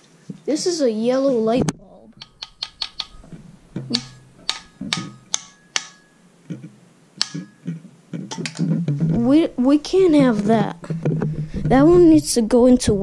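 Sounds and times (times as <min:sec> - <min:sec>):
light bulb clicking and clinking: 0:02.1 - 0:06.2, 0:07.2 - 0:07.7.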